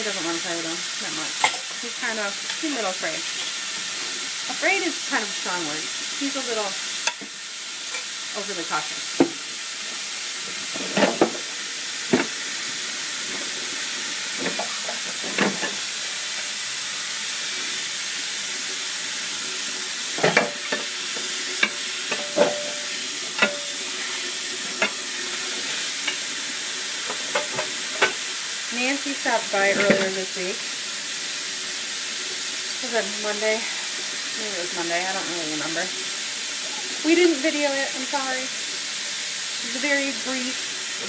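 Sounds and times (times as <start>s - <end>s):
tap water running: 0.0s - 41.0s
dishes and utensils clinking: 1.4s - 1.8s, 14.4s - 15.8s, 20.2s - 20.9s, 21.6s - 23.9s, 27.1s - 28.2s, 29.7s - 30.2s.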